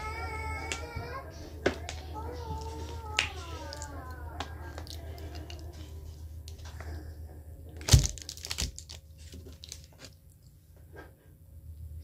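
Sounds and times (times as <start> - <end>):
paper wrapper rustling: 7.7 - 10.2.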